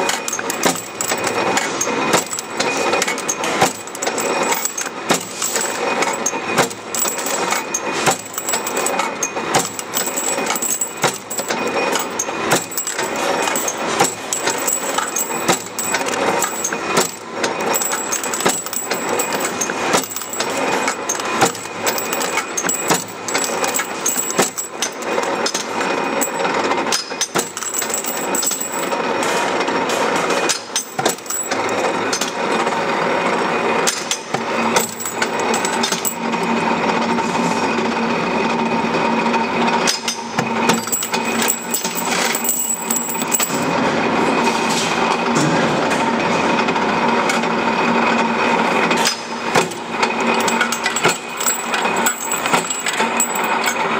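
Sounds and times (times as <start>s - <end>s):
metallic machine clatter: 0.0s - 29.4s, 34.8s - 36.3s, 40.7s - 43.8s, 49.0s - 53.9s.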